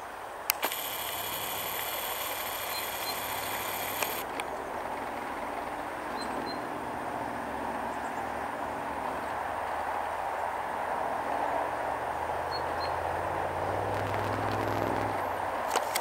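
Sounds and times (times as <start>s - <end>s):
distant vehicle traffic rumble: 0.4s - 16.0s
camera zoom motor whine: 0.5s - 4.4s, 13.8s - 16.0s
zoom motor click: 0.5s - 4.5s, 13.9s - 16.0s.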